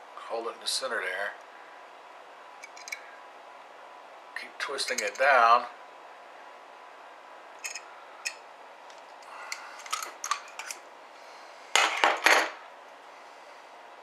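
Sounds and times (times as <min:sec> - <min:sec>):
light metallic clicks and scrapes: 0:02.6 - 0:03.0, 0:04.8 - 0:05.3, 0:07.6 - 0:10.8.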